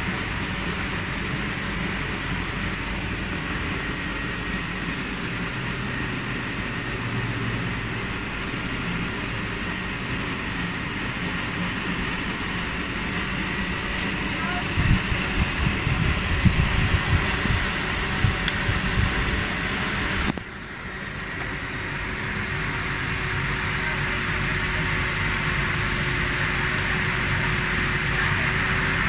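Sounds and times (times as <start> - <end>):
table fan whirring: 0.0 - 29.0.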